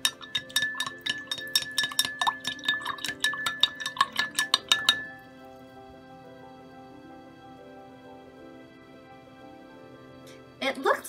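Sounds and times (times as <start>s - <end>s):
spoon clinking against glass: 0.0s - 5.3s
soft background music: 0.0s - 11.0s.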